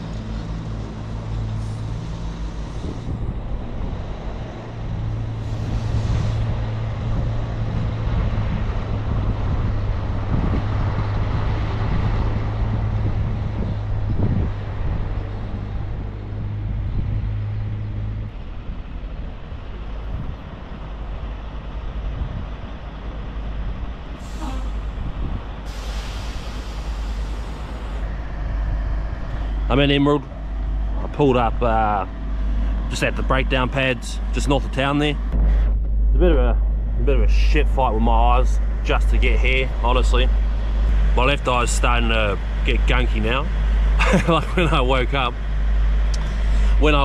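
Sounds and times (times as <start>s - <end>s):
diesel truck engine drone: 0.0s - 47.0s
air hiss bursts: 25.6s - 28.0s.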